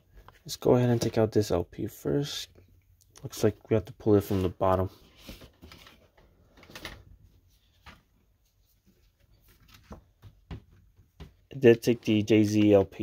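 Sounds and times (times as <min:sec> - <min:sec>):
vinyl record sleeve rustling: 0:04.0 - 0:10.4.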